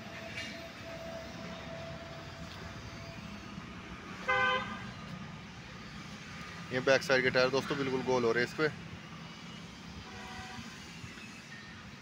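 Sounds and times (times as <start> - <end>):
short vehicle horn toot: 4.2 - 4.8.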